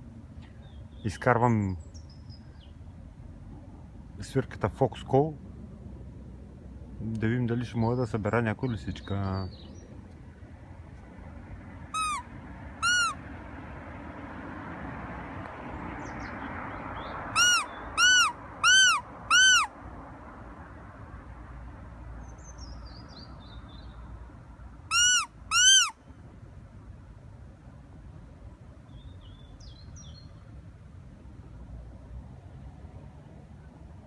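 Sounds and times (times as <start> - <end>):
predator whistle squeals: 12.0 - 12.2, 12.8 - 13.2, 17.4 - 19.7, 24.9 - 25.9.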